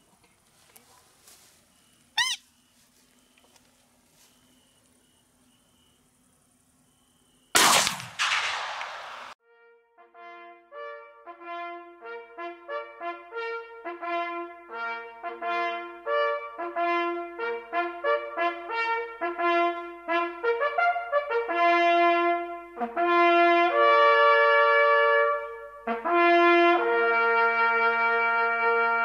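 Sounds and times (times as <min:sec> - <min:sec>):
hunting horn fanfare: 0:09.4 - 0:29.0.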